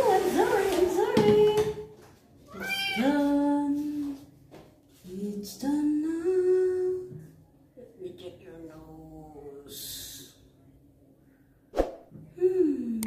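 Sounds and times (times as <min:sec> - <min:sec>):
kitten meowing: 0:02.5 - 0:03.1.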